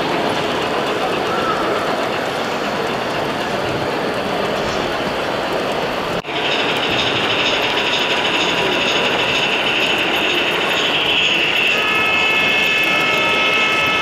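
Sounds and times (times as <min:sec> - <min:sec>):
model train whirring hiss: 0:06.3 - 0:14.0
steady high tones: 0:06.3 - 0:14.0.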